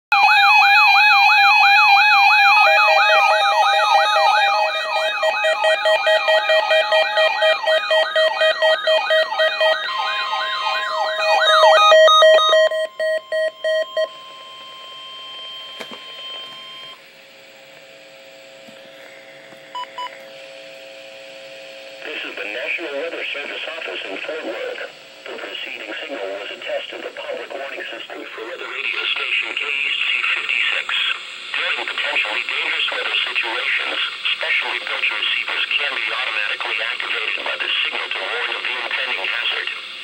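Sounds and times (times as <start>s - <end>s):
warbling siren tone: 0.1s - 17.0s
steady beeping tones: 1.4s - 17.0s, 19.7s - 20.2s
short beeps: 4.9s - 17.0s, 19.8s - 20.2s.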